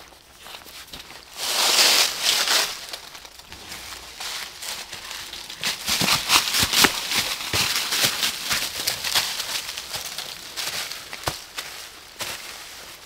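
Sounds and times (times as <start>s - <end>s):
footsteps crunching dry leaves: 0.0s - 13.0s
leaves rustling: 0.0s - 13.0s.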